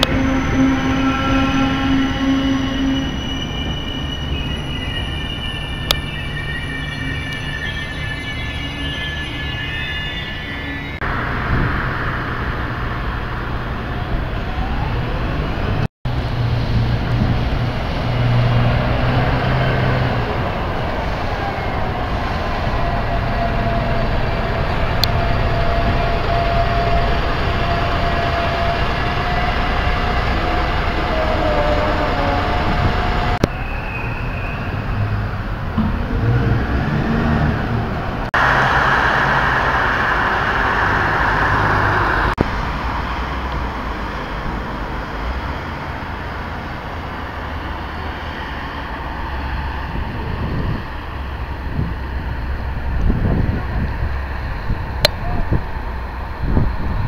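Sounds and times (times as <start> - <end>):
drawn-out whine: 0.0 - 15.8, 18.7 - 57.0
cars passing: 4.6 - 21.3, 34.6 - 53.2.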